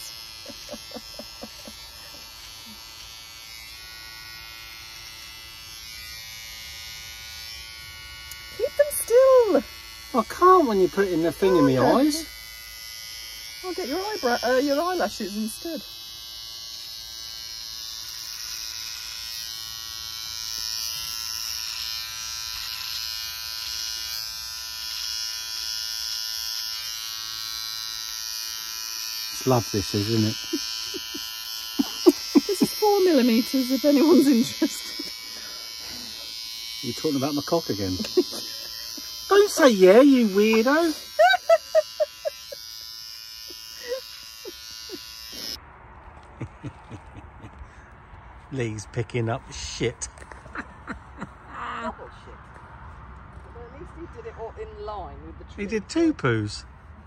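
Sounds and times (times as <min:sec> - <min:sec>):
electric hair trimmer buzzing: 0:00.0 - 0:45.6.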